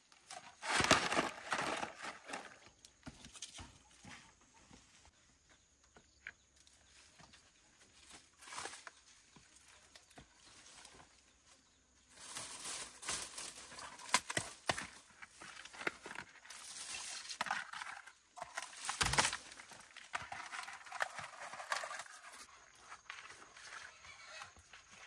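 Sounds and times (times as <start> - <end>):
dry vines rustling and crackling: 6.9 - 25.0.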